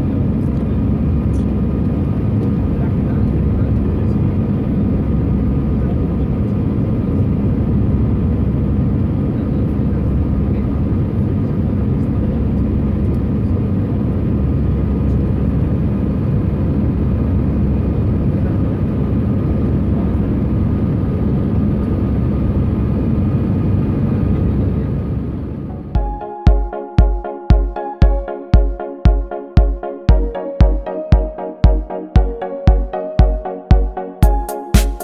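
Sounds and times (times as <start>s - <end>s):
deep even engine rumble: 0.0s - 26.0s.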